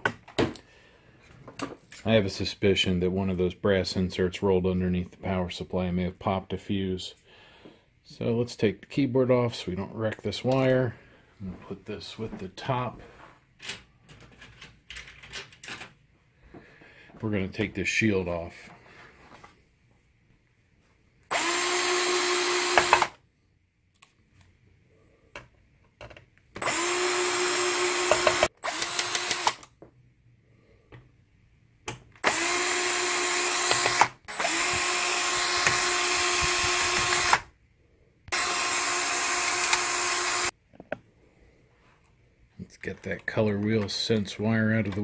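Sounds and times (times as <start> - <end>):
cordless drill backing out screws: 38.4 - 40.5.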